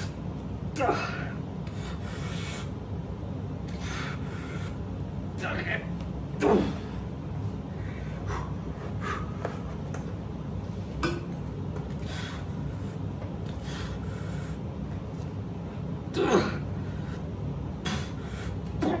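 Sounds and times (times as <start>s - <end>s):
man grunting: 0.7s - 1.4s, 5.4s - 7.0s, 16.1s - 16.7s
man breathing hard: 1.0s - 2.8s, 3.7s - 4.9s, 6.6s - 9.8s, 11.9s - 14.9s, 16.6s - 18.8s.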